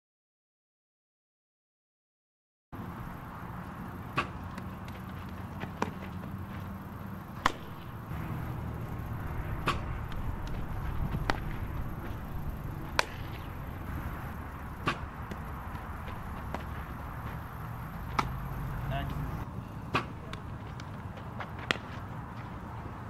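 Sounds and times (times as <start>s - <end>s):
steady background noise: 2.8s - 23.0s
bat hitting softball: 4.0s - 6.3s, 7.2s - 20.9s, 21.5s - 22.0s
ball caught in leather gloves: 7.4s - 7.9s, 9.6s - 12.2s, 12.9s - 13.5s, 14.8s - 16.9s, 18.1s - 18.4s.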